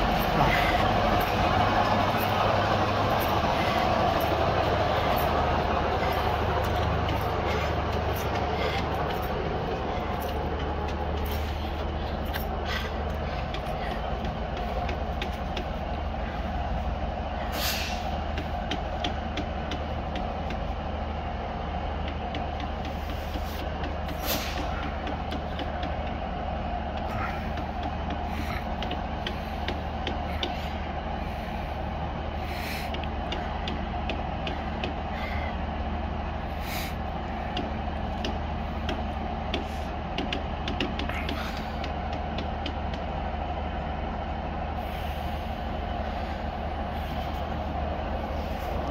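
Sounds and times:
diesel engine idling: 0.0 - 48.9
short hisses: 17.5 - 18.1.

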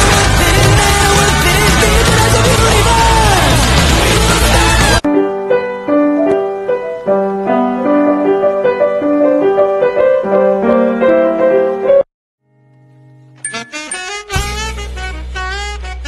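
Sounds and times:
sustained bass line: 0.0 - 5.1
piano melody: 5.0 - 15.2.

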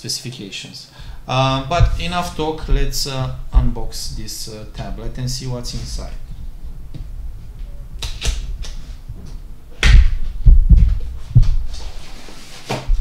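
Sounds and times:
cardboard scuffing: 1.5 - 5.0, 9.2 - 13.0.

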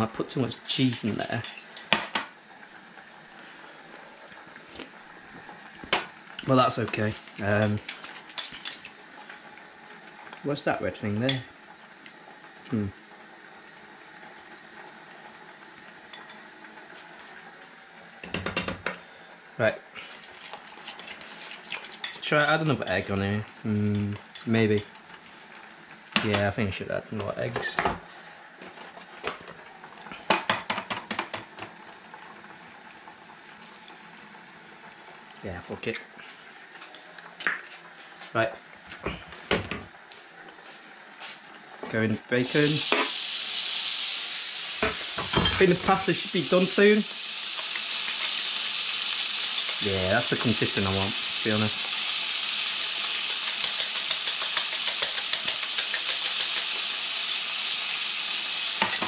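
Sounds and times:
bacon sizzling in a frying pan: 0.0 - 59.0
faint steady hiss: 0.0 - 59.0
fork clinking against a bowl: 53.5 - 56.6.

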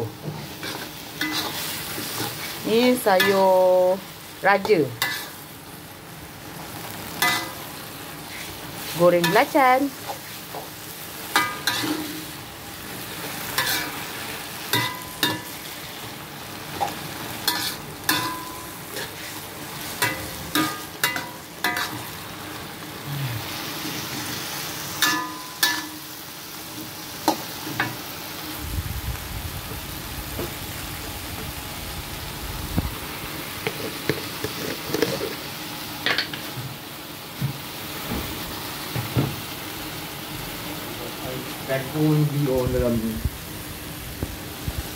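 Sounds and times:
greens sizzling in a wok: 0.0 - 44.9
metal spatula clanking on pan: 7.2 - 7.6, 11.3 - 12.1, 14.7 - 15.5, 16.8 - 19.1, 20.0 - 22.0, 25.0 - 26.0.

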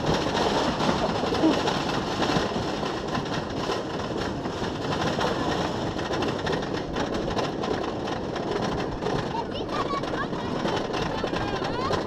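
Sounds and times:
roller coaster lift clattering: 0.0 - 12.0.

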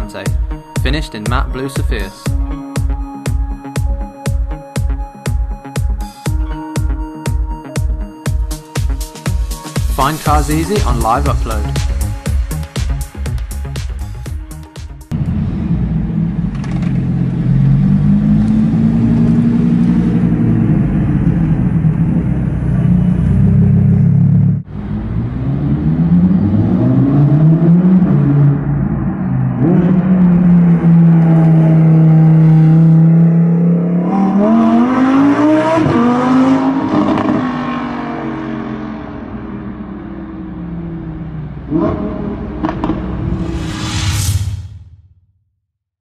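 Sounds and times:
car engine revving and accelerating: 15.1 - 43.9.

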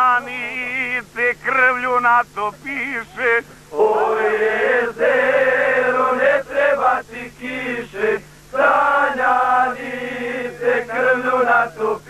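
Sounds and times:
faint low hum: 0.0 - 12.0
group of men singing: 3.7 - 12.0.

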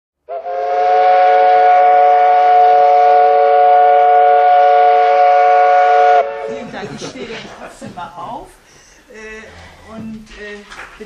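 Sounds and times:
steam whistle blast: 0.2 - 6.5.

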